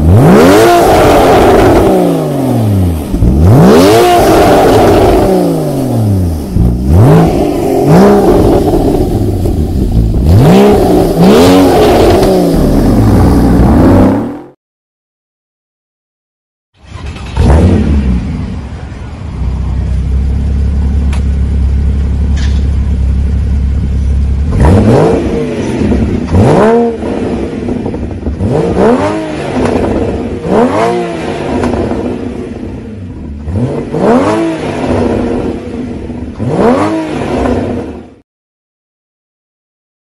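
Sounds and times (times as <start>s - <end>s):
car engine revving: 0.0s - 14.6s, 16.9s - 38.2s
car engine idling: 1.2s - 14.4s, 16.9s - 28.9s.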